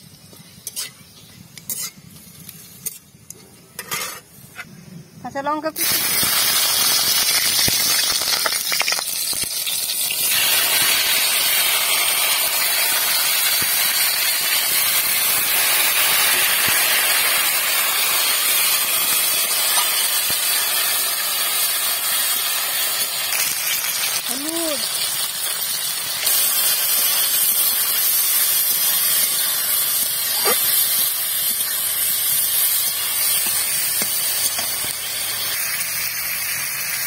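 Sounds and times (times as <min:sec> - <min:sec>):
hot oil sizzling: 0:00.0 - 0:37.0
spatula scraping pan: 0:01.7 - 0:02.1, 0:03.8 - 0:04.7.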